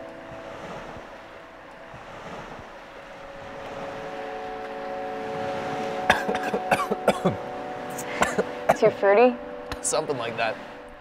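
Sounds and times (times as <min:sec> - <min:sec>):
soft drone of held tones: 0:00.0 - 0:11.0
surf: 0:00.0 - 0:11.0
wind: 0:00.0 - 0:11.0
woman coughing: 0:06.1 - 0:07.4, 0:08.2 - 0:08.9.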